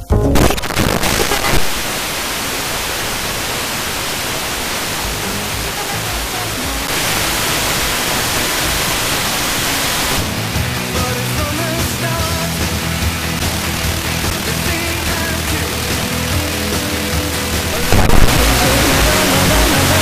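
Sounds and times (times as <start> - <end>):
faint radio station audio: 0.0 - 12.8, 13.4 - 20.0
radio static hiss: 0.4 - 20.0.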